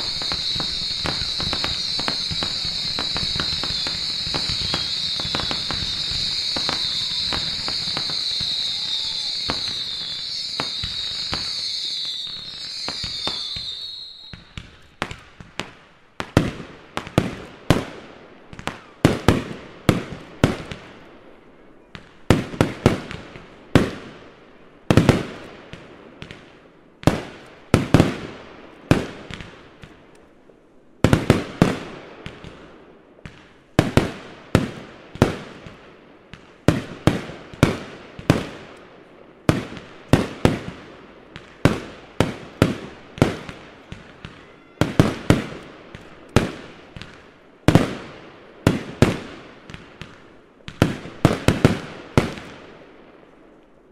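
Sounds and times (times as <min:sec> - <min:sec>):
fireworks bangs echoing: 0:00.0 - 0:21.0, 0:31.0 - 0:53.0.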